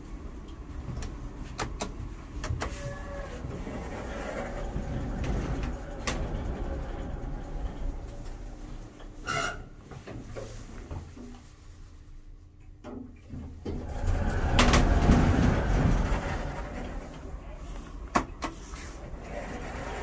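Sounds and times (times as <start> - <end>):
lift low rumbling whoosh: 13.8 - 18.1.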